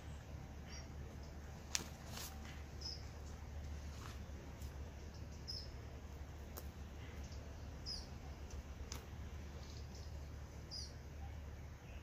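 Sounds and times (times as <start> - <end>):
small bird chirping: 0.0 - 1.6, 2.3 - 3.4, 4.8 - 12.0
low steady rumble: 0.0 - 12.0.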